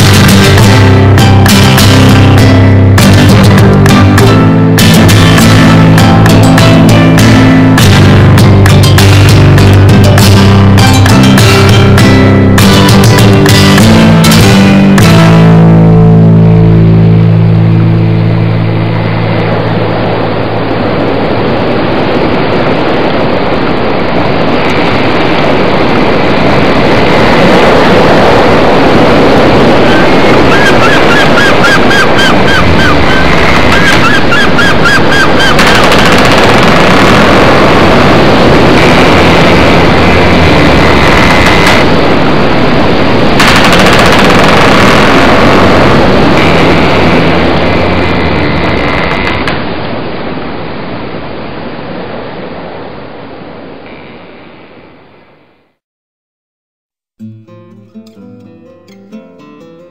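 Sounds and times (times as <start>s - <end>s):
rock guitar music: 0.0s - 20.7s, 26.7s - 49.6s, 57.2s - 59.9s
motorboat engine running: 0.0s - 50.1s
hull rushing through water: 17.8s - 53.8s
wind buffeting microphone: 18.1s - 54.4s.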